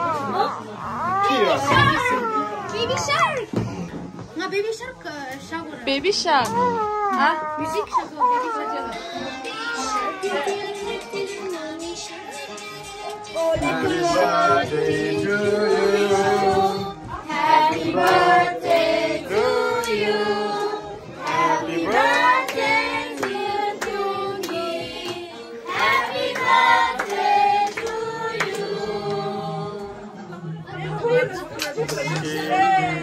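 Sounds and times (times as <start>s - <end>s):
voices singing together: 8.9s - 30.7s.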